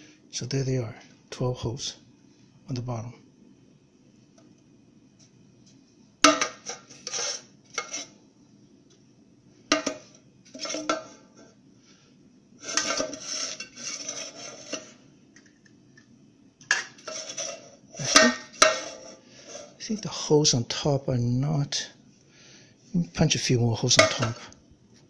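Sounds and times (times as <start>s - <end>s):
metal pot clanking in a tin: 6.2s - 8.1s, 9.7s - 11.2s, 12.6s - 15.0s, 16.7s - 19.7s, 23.9s - 24.5s.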